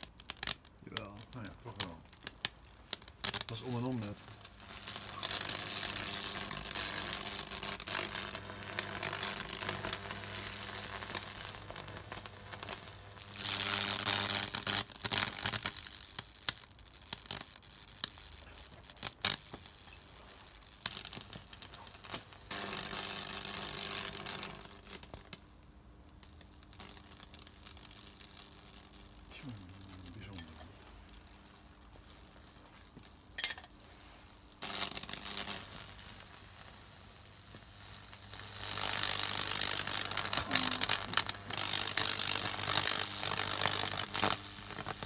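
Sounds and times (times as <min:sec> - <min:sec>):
burning wood crackling and hissing: 0:00.0 - 0:45.0
electric arc buzzing: 0:00.0 - 0:45.0
sharp pops: 0:37.5 - 0:45.0.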